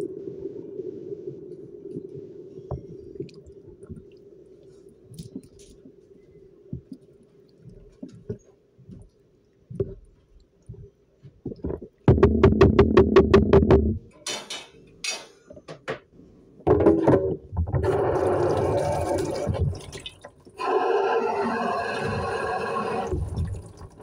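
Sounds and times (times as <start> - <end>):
low steady hum: 0.0 - 14.2.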